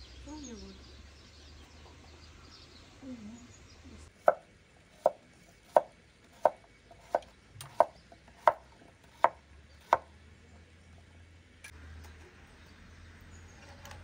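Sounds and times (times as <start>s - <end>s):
knife chopping on wooden board: 4.2s - 4.4s, 5.0s - 10.1s.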